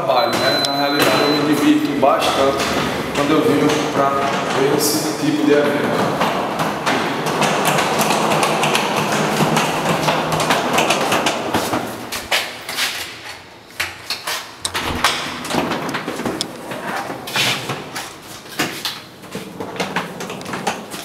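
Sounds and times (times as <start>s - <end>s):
footsteps and rustling: 1.4s - 14.9s, 15.9s - 21.0s
door lock and handle clicking: 14.6s - 17.2s.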